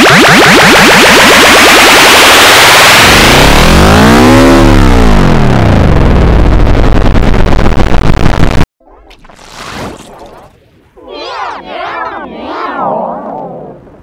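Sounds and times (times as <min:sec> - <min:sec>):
distorted warbling effects audio: 0:00.0 - 0:14.0
tone arching up and down: 0:08.8 - 0:14.0
rapid pulsing: 0:11.0 - 0:14.0.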